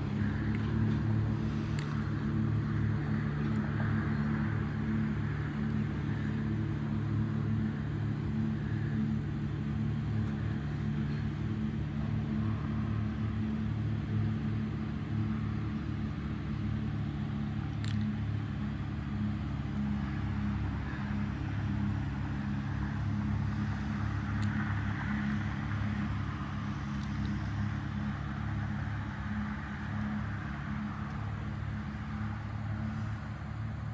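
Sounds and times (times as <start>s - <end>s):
steady low motor hum: 0.0s - 33.9s
light clicks: 17.8s - 18.2s.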